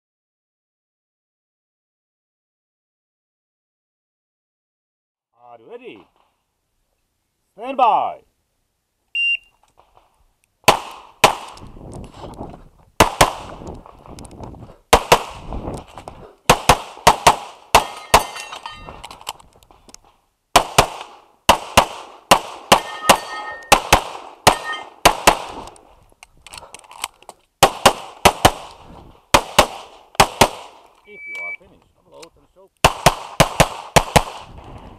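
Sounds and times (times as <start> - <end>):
pistol shots with echo: 10.7 - 11.6, 16.5 - 18.5, 20.6 - 25.7, 27.6 - 30.8, 32.8 - 34.5.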